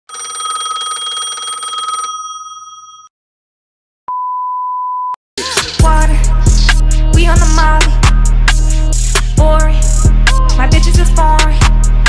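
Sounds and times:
telephone trilling ring: 0.1 - 3.1
music: 5.4 - 12.0.

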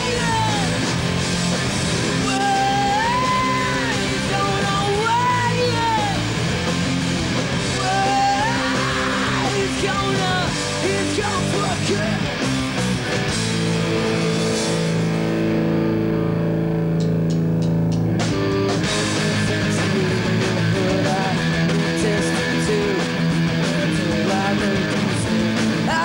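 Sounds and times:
punk rock band playing: 0.0 - 26.0
woman singing: 2.3 - 6.2.

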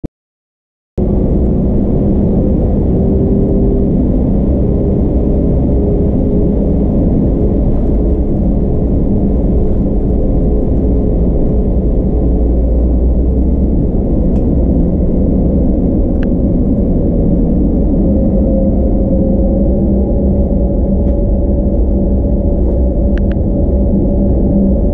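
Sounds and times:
jet engines rumbling in cabin: 1.0 - 24.9.

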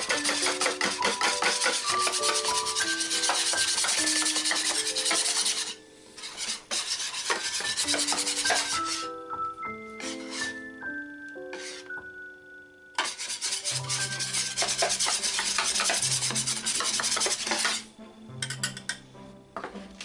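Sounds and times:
whisk scraping metal tray: 0.0 - 9.1, 10.0 - 10.6, 11.5 - 11.9, 13.0 - 18.6
background music: 0.0 - 20.0.

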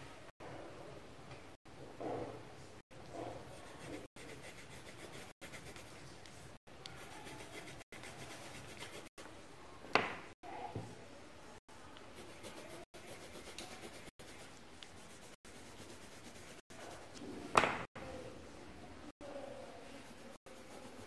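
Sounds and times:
pencil scratching on paper: 3.1 - 9.2, 12.1 - 17.2, 19.8 - 21.0.

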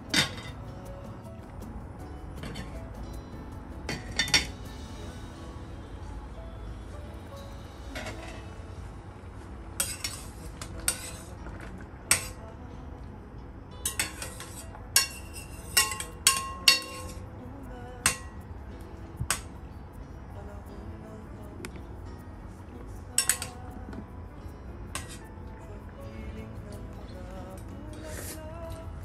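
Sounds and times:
metal spoon clinking in saucepan: 13.8 - 17.2, 23.2 - 23.6.

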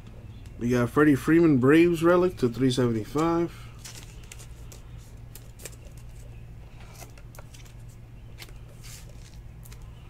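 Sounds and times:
low steady hum: 0.0 - 10.0
plastic card sleeves handled: 3.1 - 10.0.

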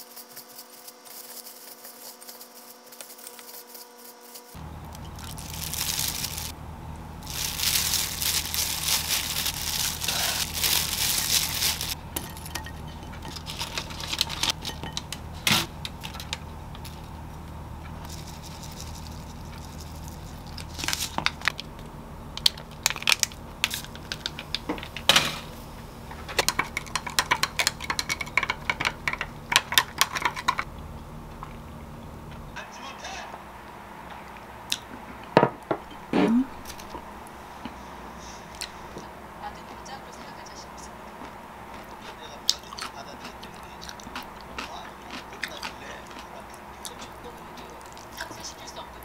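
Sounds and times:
plastic gloves crinkling: 0.0 - 21.8, 22.4 - 25.0
straw stirring ice clinks: 4.8 - 6.5, 7.2 - 15.3, 26.3 - 30.7
dishes knocking: 26.3 - 30.6.

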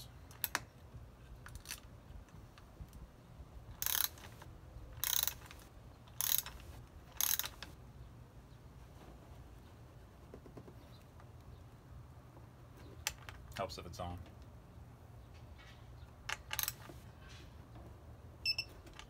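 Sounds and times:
socket ratchet clicking: 3.8 - 7.8, 16.3 - 16.9.

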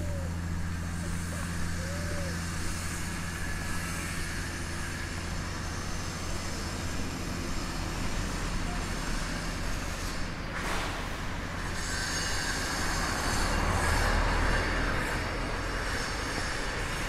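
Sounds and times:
street noise: 0.0 - 17.0
vehicle engine humming: 0.0 - 17.0.

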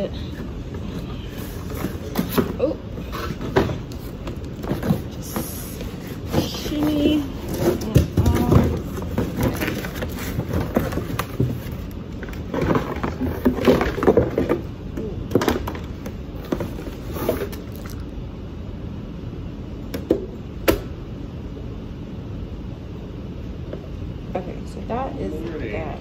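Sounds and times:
household objects clattering: 1.5 - 14.7.

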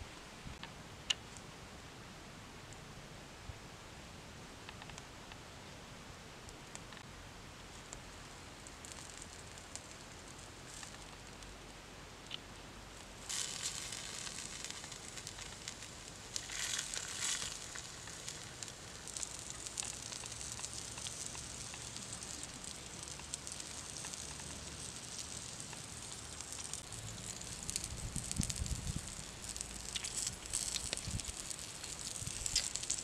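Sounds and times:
wood fire crackling: 6.4 - 33.0
frogs sizzling on hot stone: 7.7 - 33.0.

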